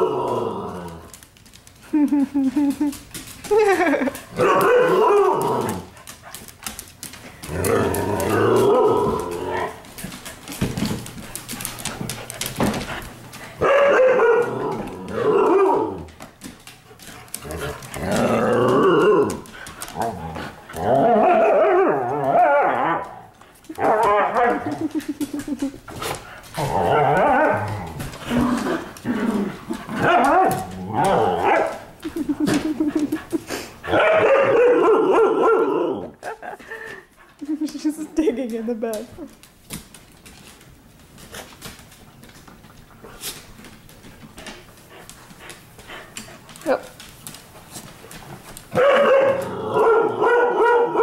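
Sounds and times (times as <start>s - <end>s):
dogs growling and barking: 0.0s - 1.3s, 2.5s - 16.3s, 17.0s - 36.5s, 48.1s - 51.0s.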